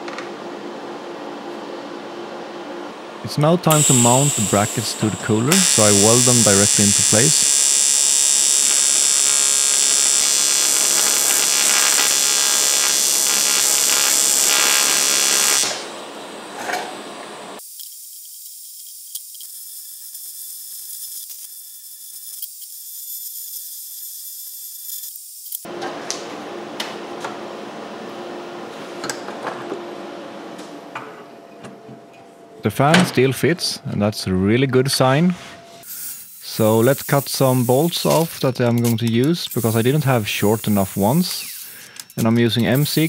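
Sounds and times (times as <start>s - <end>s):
welding arc buzzing hiss: 3.4s - 26.2s, 35.8s - 43.0s.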